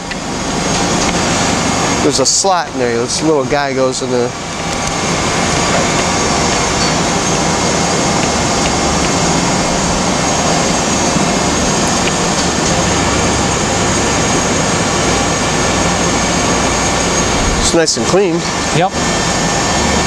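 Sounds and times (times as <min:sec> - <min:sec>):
machinery running: 0:00.0 - 0:20.0.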